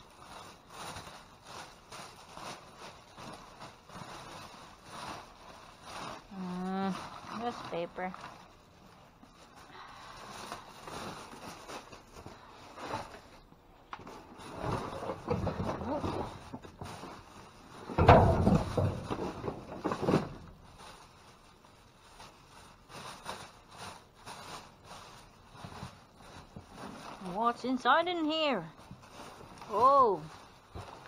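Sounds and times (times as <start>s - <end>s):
rustling of bags and packaging: 0.0s - 31.0s
knocks of items being shifted: 13.9s - 20.6s.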